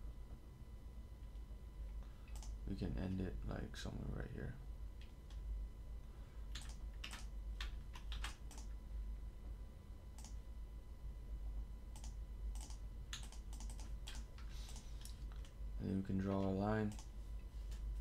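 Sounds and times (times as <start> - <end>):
low steady hum: 0.0 - 18.0
keyboard and mouse clicks: 2.3 - 2.6, 6.5 - 8.7, 10.2 - 10.4, 11.9 - 15.6, 16.9 - 17.1.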